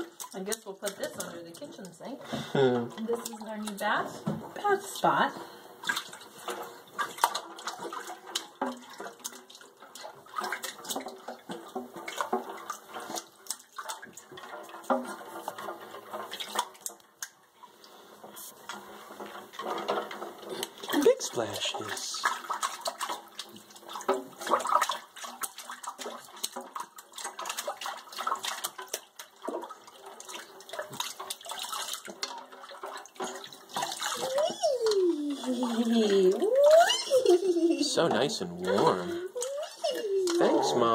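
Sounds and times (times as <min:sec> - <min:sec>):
baby splashing bathwater: 0:00.0 - 0:40.9
baby splashing in water: 0:20.5 - 0:40.9
person's voice: 0:21.0 - 0:22.3, 0:34.3 - 0:40.9.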